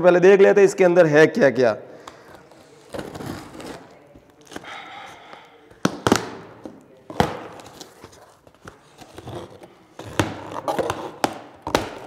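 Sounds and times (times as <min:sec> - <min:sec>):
knife cutting cardboard and tape: 0:02.4 - 0:04.9, 0:07.1 - 0:12.0.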